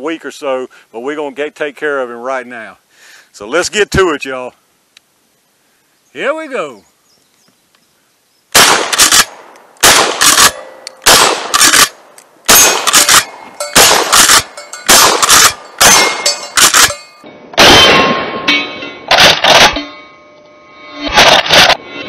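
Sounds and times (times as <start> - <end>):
shotgun shots: 8.5 - 17.0, 17.6 - 19.8, 21.0 - 21.8
exploding target blast: 8.6 - 10.3, 11.0 - 11.6, 13.8 - 16.9, 17.6 - 19.8
shotgun pump action: 8.6 - 17.0
steel targets clanging: 12.5 - 20.2.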